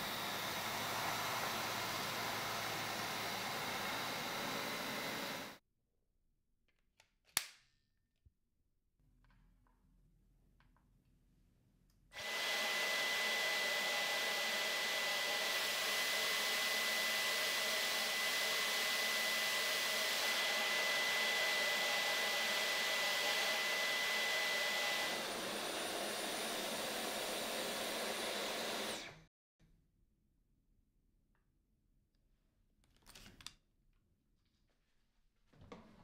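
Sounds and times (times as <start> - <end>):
stick vacuum whining: 0.0 - 5.6, 12.2 - 29.3.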